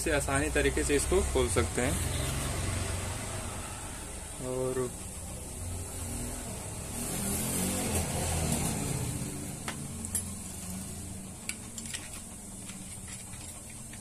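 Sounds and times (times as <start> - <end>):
metal parts clicking and tapping: 9.6 - 10.8, 11.4 - 14.0.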